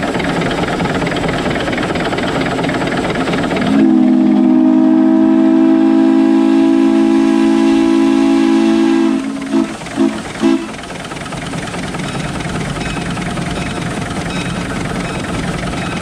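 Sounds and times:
steam locomotive whistle: 3.7 - 10.8.

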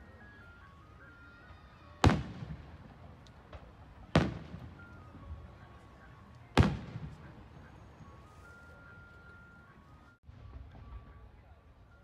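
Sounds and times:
firework shells booming: 2.0 - 4.8, 6.6 - 7.2.

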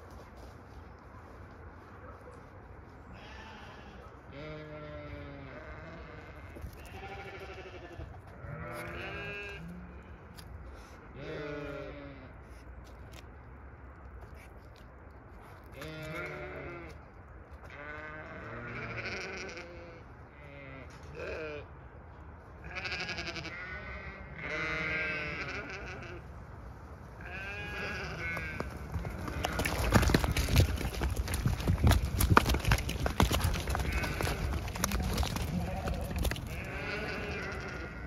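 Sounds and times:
sheep bleating: 3.1 - 9.8, 11.2 - 12.3, 15.8 - 17.0, 17.7 - 21.6, 22.6 - 26.2, 27.2 - 31.3, 33.2 - 38.0.

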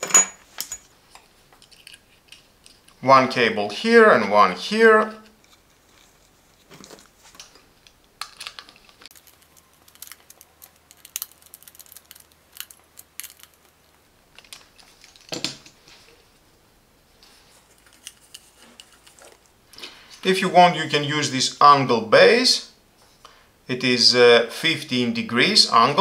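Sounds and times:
hands handling plastic device: 17.5 - 19.5.

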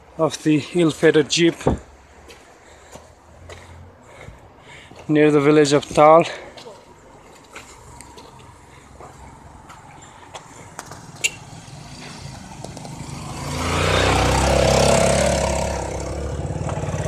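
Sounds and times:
vehicle passing by: 7.0 - 17.0.

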